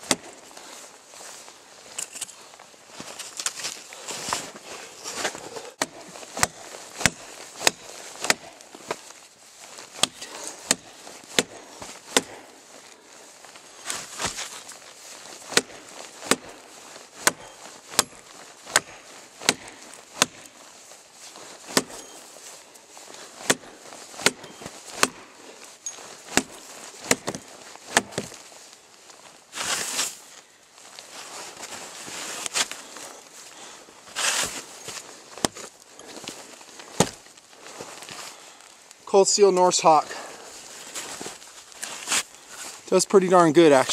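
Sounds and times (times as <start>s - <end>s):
tomahawk chopping log: 0.0s - 0.4s, 5.8s - 9.0s, 9.8s - 12.5s, 15.5s - 16.6s, 17.2s - 20.6s, 21.6s - 22.1s, 23.4s - 25.3s, 26.2s - 28.4s, 36.9s - 37.3s
short rustle: 0.4s - 43.9s.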